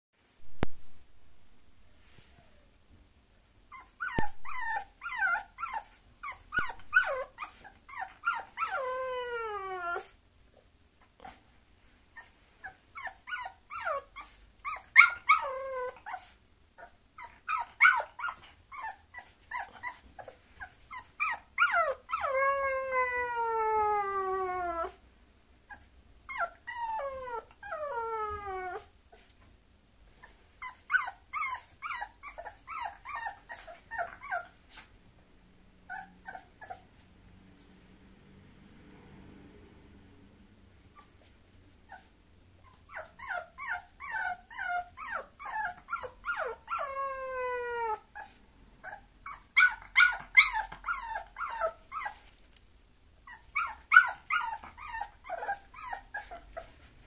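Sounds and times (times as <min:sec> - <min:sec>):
puppy whining and whimpering: 0:01.8 - 0:02.8, 0:03.6 - 0:11.4, 0:12.1 - 0:25.0, 0:25.6 - 0:29.4, 0:30.1 - 0:35.0, 0:35.8 - 0:37.1, 0:40.9 - 0:52.5, 0:53.2 - 0:57.0.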